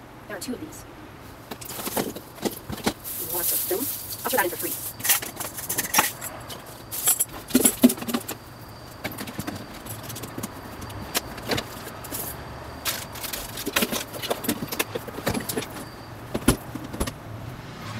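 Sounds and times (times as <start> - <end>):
rustling: 1.2 - 17.2.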